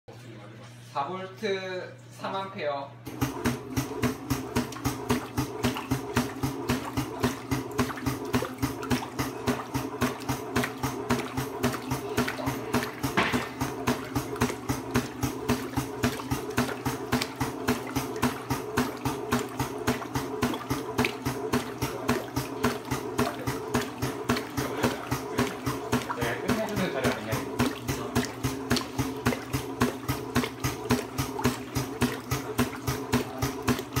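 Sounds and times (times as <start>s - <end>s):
electric motor humming with knock: 3.0s - 34.0s
water sloshing: 3.3s - 34.0s.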